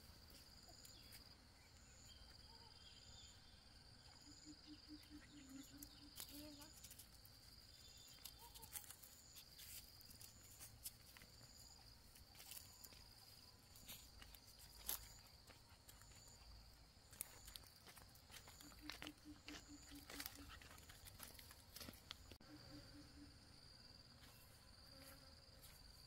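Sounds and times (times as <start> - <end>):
insect trilling: 4.1 - 7.1, 17.1 - 21.5, 22.4 - 23.6
footsteps on dirt path: 8.0 - 22.4, 24.2 - 26.0.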